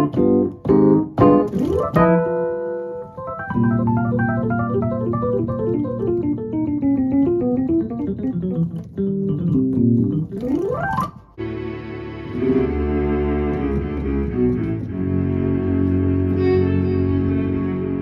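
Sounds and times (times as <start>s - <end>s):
rising keyboard glissando: 1.2s - 18.0s
keyboard chord and note runs: 9.7s - 18.0s
sustained bowed string: 11.4s - 18.0s.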